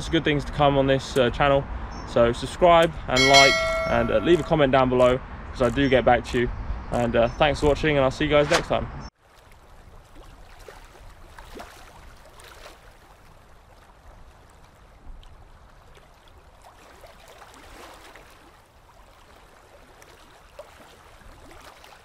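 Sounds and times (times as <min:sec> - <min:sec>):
water lapping and trickling: 0:09.1 - 0:22.0.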